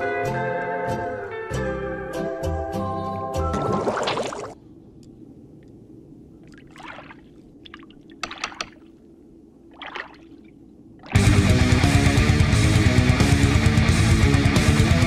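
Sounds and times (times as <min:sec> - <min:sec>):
bubbling gurgles: 0:03.6 - 0:04.6, 0:06.4 - 0:08.8
distorted electric guitar music: 0:11.2 - 0:15.0.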